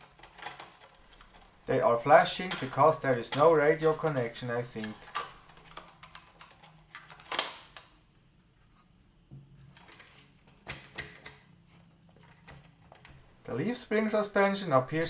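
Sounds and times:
plastic toy clicks and knocks: 0:02.2 - 0:07.9.

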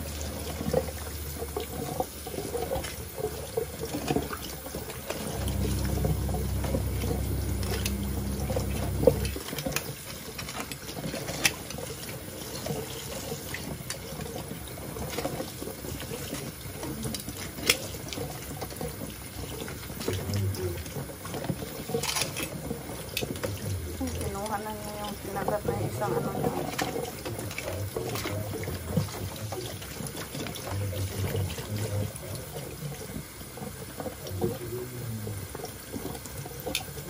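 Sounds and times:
low hum: 0:05.2 - 0:09.4.

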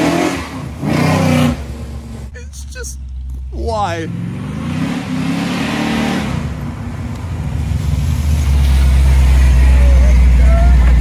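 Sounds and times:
loud car engine revving: 0:00.0 - 0:02.3, 0:04.0 - 0:06.9.

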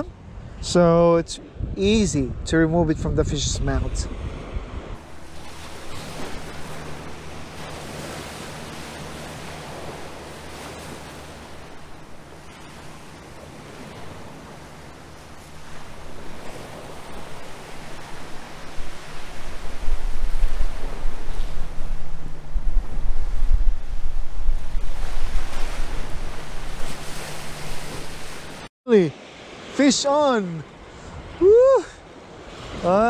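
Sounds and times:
wind buffeting microphone: 0:00.0 - 0:28.6
waves washing against rocks: 0:05.0 - 0:21.7.

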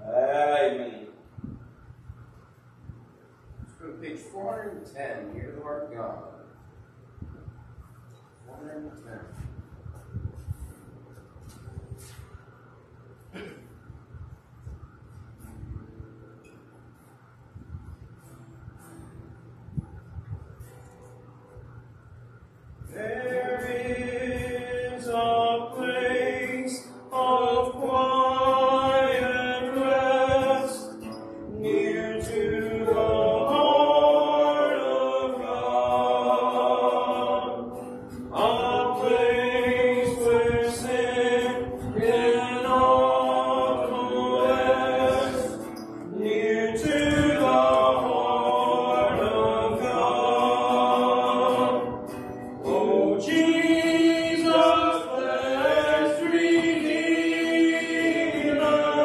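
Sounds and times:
man singing a hymn: 0:00.0 - 0:01.2, 0:22.9 - 0:59.0
acoustic guitar accompaniment: 0:00.0 - 0:59.0.

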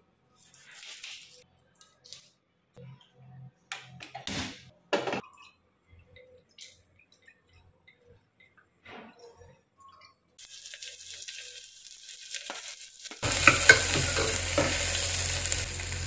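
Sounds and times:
kitchen knocks and clatters: 0:04.2 - 0:05.3, 0:13.2 - 0:15.0
oil dribbling into a pot: 0:10.4 - 0:16.0.

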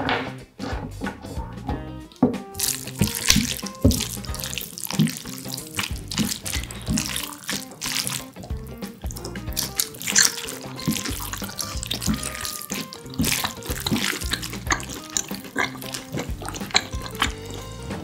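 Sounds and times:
soft background music: 0:00.0 - 0:18.0
wet slurping and chewing: 0:02.6 - 0:18.0.

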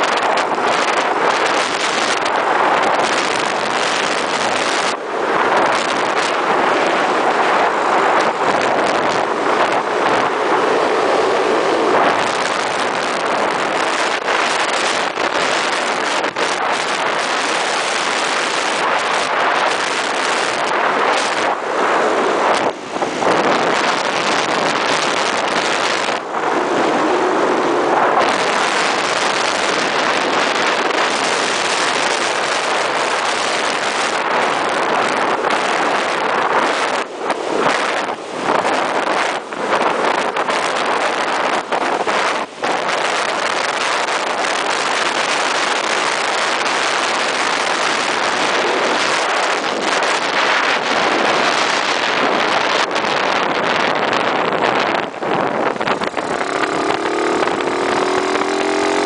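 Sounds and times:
wind buffeting microphone: 0:00.0 - 0:59.0
scooter engine running: 0:55.6 - 0:59.0.

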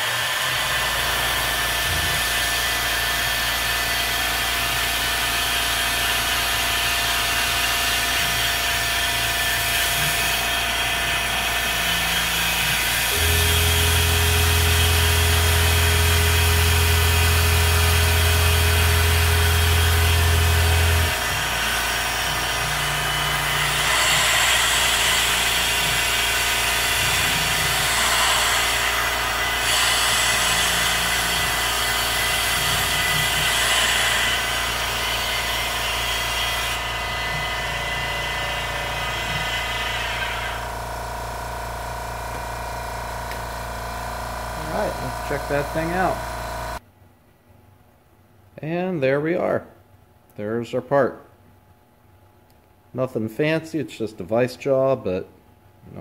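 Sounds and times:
milling machine spindle whine: 0:00.0 - 0:46.8
cutting hiss: 0:05.7 - 0:40.6
deep hum: 0:07.9 - 0:46.8.

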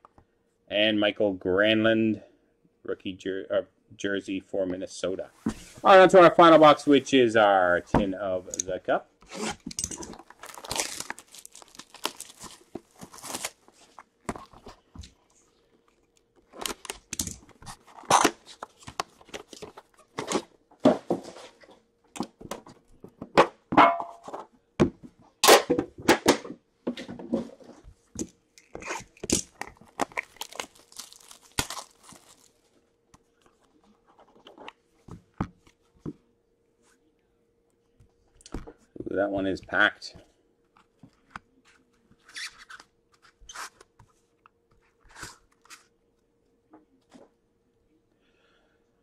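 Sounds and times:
handling of a box: 0:09.2 - 0:23.4, 0:27.0 - 0:32.5
plastic wrap tearing and crumpling: 0:09.4 - 0:14.5, 0:28.8 - 0:32.6.

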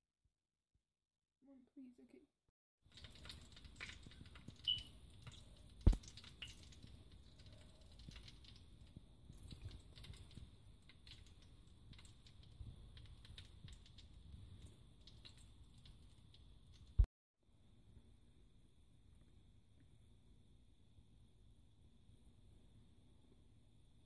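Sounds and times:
faint scattered clicks and taps: 0:02.9 - 0:17.0.

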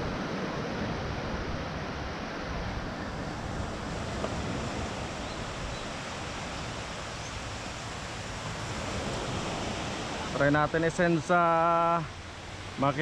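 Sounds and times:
wind buffeting microphone: 0:00.0 - 0:10.4
surf washing on sandy beach: 0:00.0 - 0:13.0.

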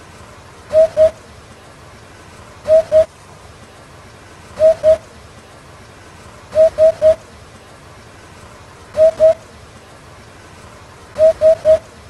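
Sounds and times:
hoopoe hooting song: 0:00.7 - 0:01.2, 0:02.7 - 0:03.1, 0:04.6 - 0:05.0, 0:06.5 - 0:07.2, 0:09.0 - 0:09.4, 0:11.2 - 0:11.9.

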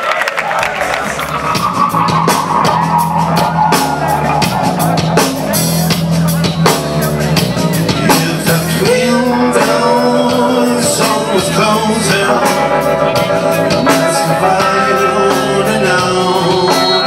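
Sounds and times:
live rock band playing: 0:00.4 - 0:17.0
man singing: 0:06.5 - 0:17.0.

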